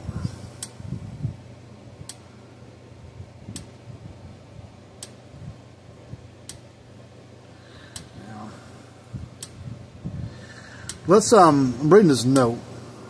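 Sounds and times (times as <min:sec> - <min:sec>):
electric fence charger clicking: 0:06.4 - 0:06.7.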